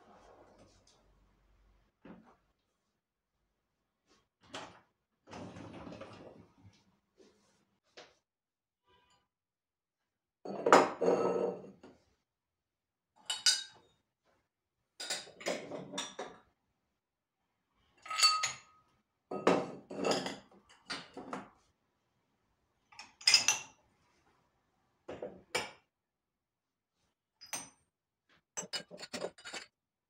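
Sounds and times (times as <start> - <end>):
glasses and dishes clinking: 13.3 - 13.8, 18.1 - 18.7.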